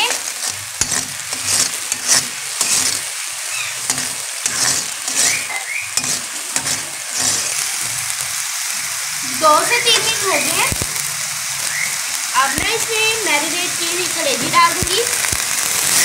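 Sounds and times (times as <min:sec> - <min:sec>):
spatula scraping a wok: 0:00.0 - 0:09.2
onion paste sizzling in oil: 0:00.0 - 0:16.0.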